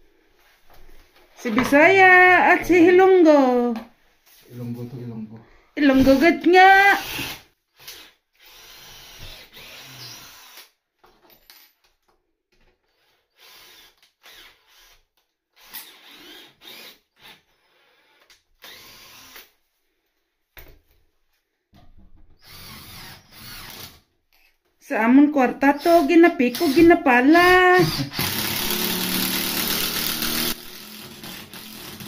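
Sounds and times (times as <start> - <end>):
cordless drill drilling into wood: 5.9 - 10.8, 13.0 - 15.0, 15.6 - 19.5, 22.4 - 24.0, 25.7 - 32.0.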